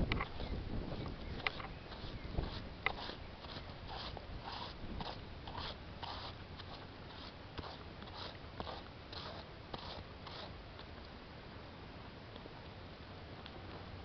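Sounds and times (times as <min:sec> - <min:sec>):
horse hooves on sand: 0:00.0 - 0:10.9.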